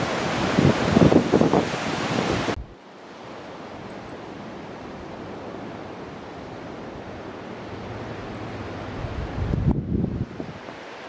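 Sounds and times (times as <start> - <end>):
wind buffeting the microphone: 0.0 - 2.7, 8.7 - 10.9
steady rush of wind: 0.0 - 11.0.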